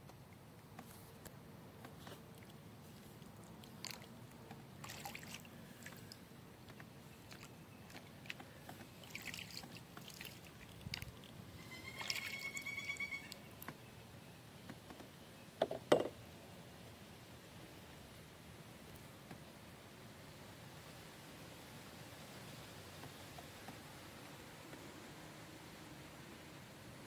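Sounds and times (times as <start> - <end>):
water dripping off a paddle: 2.4 - 4.1, 7.2 - 11.3
paddle splashing in water: 4.8 - 6.2, 7.3 - 11.3.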